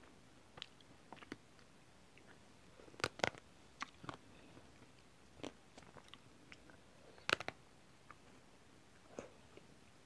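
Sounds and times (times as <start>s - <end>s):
chewing and mouth clicks: 0.6s - 2.4s, 5.4s - 8.2s.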